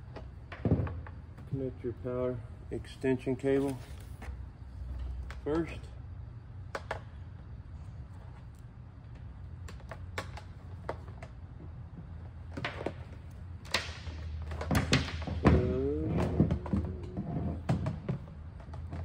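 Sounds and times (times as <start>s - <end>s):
plastic scraping and squeaks: 15.4s - 18.0s.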